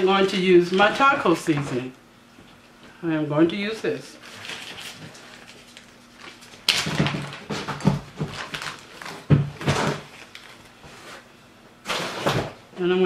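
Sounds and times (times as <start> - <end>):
plastic bag crinkling: 0.2 - 1.9, 4.2 - 11.2.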